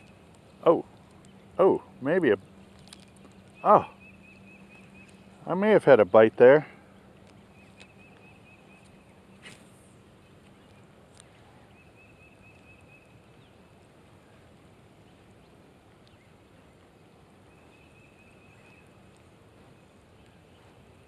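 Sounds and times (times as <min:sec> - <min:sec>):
rod and reel rustling: 0:00.0 - 0:03.7, 0:07.1 - 0:17.5
light rain on a pond: 0:00.0 - 0:21.0.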